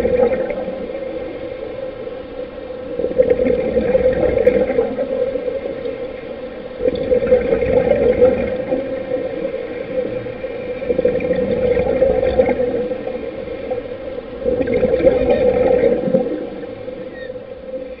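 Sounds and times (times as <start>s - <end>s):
bubbling exhalations: 14.4s - 16.7s.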